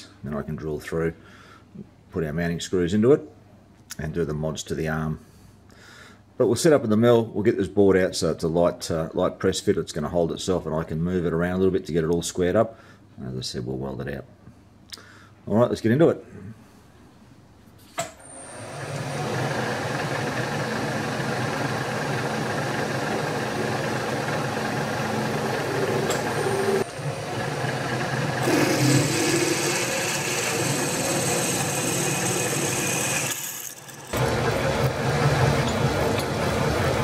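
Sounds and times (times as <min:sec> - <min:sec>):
milling machine spindle running: 0:18.4 - 0:37.0
drill cutting into steel: 0:28.4 - 0:34.3.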